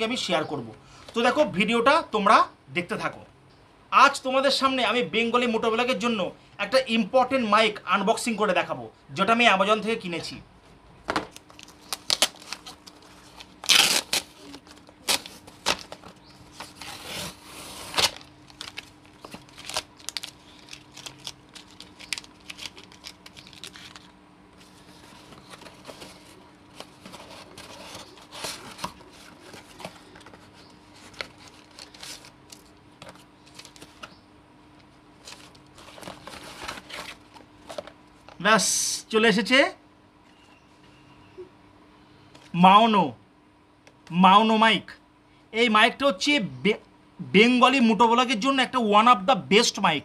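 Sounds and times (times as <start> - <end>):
cardboard and paper rustling: 11.1 - 34.2, 35.2 - 38.4
cardboard ripping: 11.9 - 24.1.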